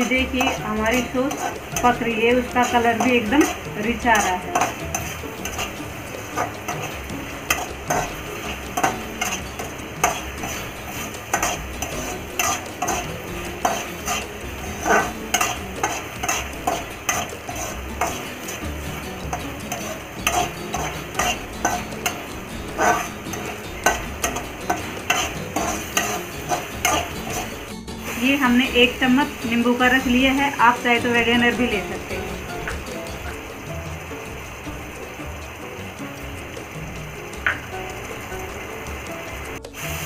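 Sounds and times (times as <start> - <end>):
metal spatula scraping a pan: 0.0 - 31.5
pan sizzling: 0.0 - 40.0.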